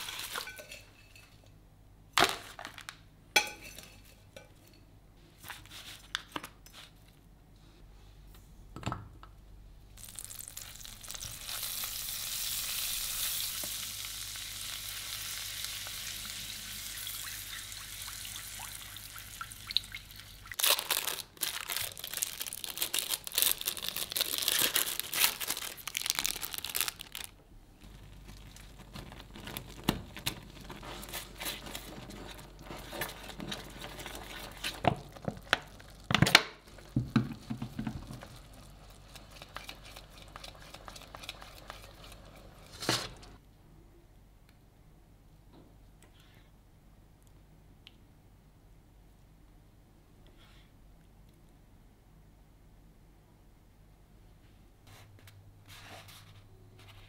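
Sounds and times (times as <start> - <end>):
butter sizzling in a frying pan: 10.0 - 19.2
dense crackling: 22.0 - 34.3
sharp knocks and crinkles: 27.8 - 43.4.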